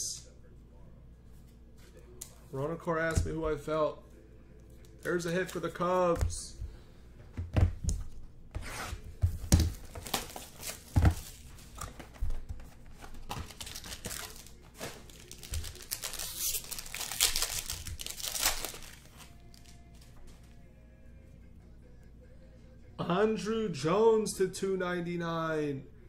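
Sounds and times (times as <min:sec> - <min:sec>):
foil wrapper crinkling and tearing: 0:13.2 - 0:19.8.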